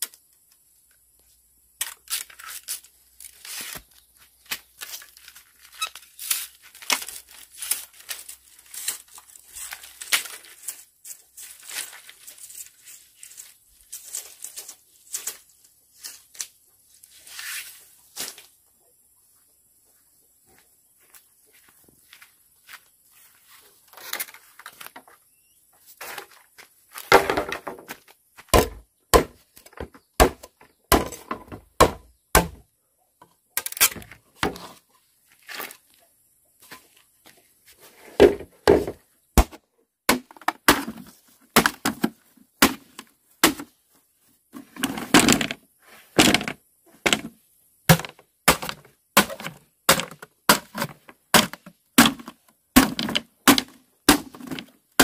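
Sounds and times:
bamboo cracking and splintering: 0:00.0 - 0:01.0, 0:01.7 - 0:15.5, 0:28.5 - 0:32.6, 0:33.5 - 0:35.9, 0:38.2 - 0:43.7, 0:46.2 - 0:55.0
machete chopping bamboo: 0:28.4 - 0:32.6, 0:38.2 - 0:43.7, 0:47.9 - 0:55.0.

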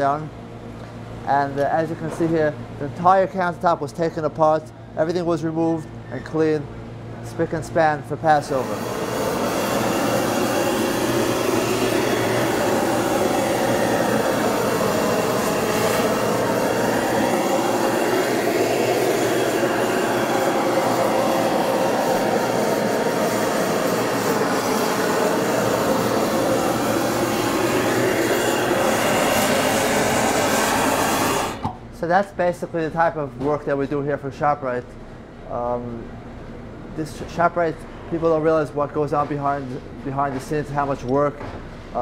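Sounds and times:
gas torch hissing: 0:08.2 - 0:31.8.

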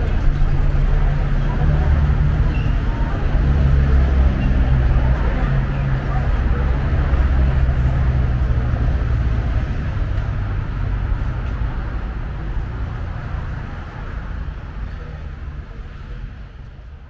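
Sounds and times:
street noise: 0:00.0 - 0:17.0
traffic rumble: 0:00.0 - 0:17.0.

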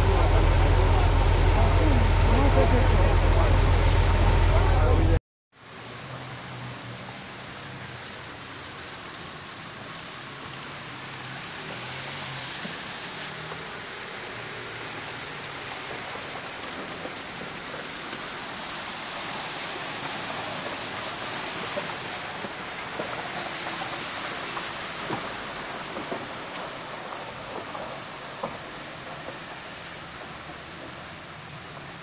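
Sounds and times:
water running through street: 0:00.0 - 0:32.0.

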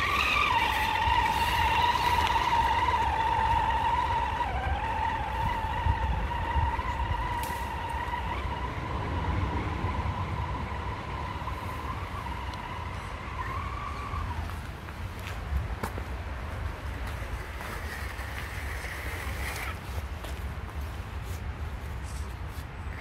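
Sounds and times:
toy car motor whining: 0:00.0 - 0:14.7, 0:17.5 - 0:19.9.

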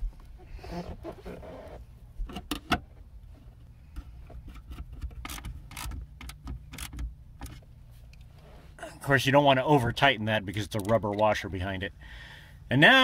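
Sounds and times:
low steady hum: 0:00.0 - 0:13.0
sharp metallic clicks: 0:05.2 - 0:07.6.

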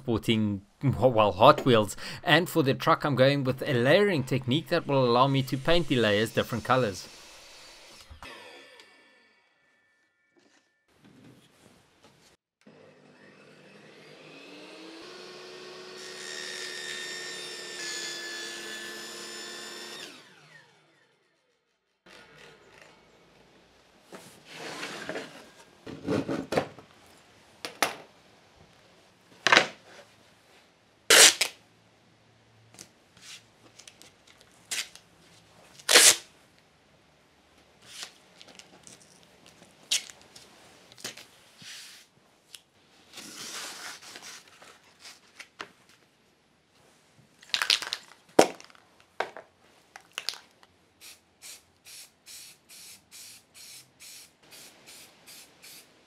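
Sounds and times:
tape ripping: 0:31.1 - 0:31.6, 0:34.7 - 0:35.0, 0:35.8 - 0:36.3, 0:47.4 - 0:48.8, 0:50.0 - 0:50.5.

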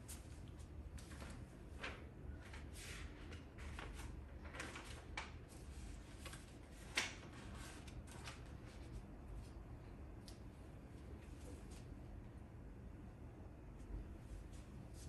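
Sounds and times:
paper sheets rustling: 0:01.0 - 0:09.0.

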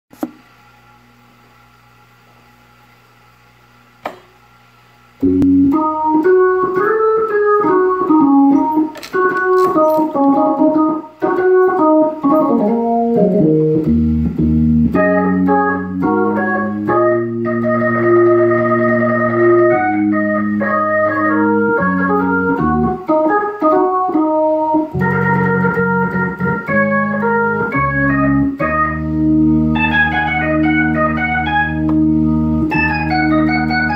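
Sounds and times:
faint steady hum: 0:00.2 - 0:33.9
organ playing: 0:05.2 - 0:33.9.

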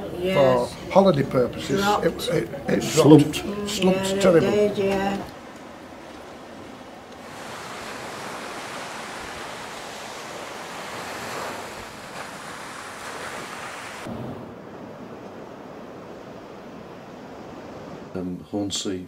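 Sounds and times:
surf washing onto shore: 0:05.0 - 0:18.3
wind buffeting microphone: 0:05.3 - 0:18.2.

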